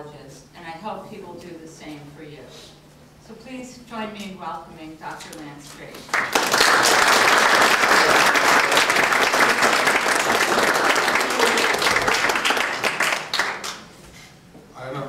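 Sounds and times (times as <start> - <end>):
audience applauding: 6.1 - 13.9.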